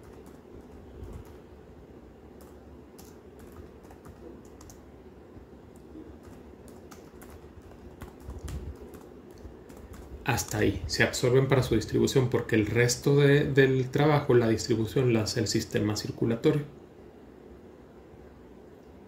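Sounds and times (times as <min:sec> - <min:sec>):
typing on keyboard: 0:00.0 - 0:01.4, 0:02.4 - 0:04.9, 0:05.7 - 0:10.6.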